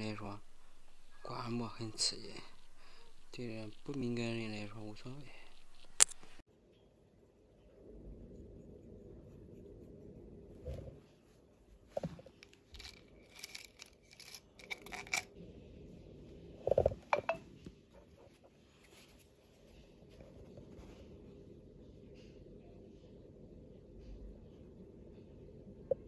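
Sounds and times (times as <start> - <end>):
metal ear pick scraping: 0.0 - 6.4.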